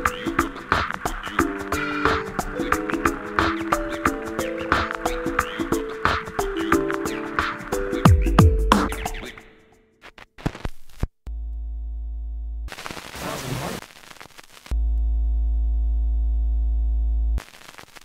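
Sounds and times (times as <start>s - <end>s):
low buzzing synthetic tone: 11.3s - 12.7s, 14.8s - 17.4s.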